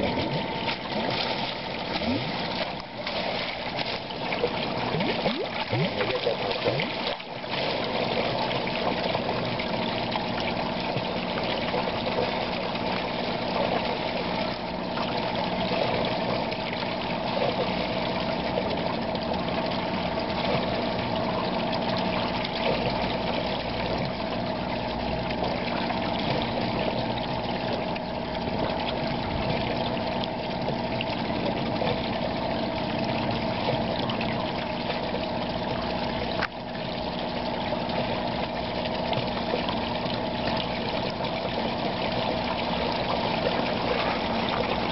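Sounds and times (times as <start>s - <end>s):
water splashing onto ground: 0.0s - 8.3s
pump motor hum: 0.0s - 44.9s
water gushing from a pipe: 0.0s - 44.9s.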